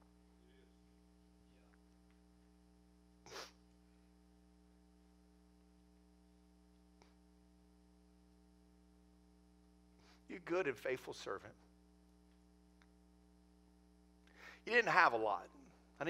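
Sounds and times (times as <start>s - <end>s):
faint sound system hum: 0.0s - 16.0s
short breath or sniff: 3.3s - 3.6s.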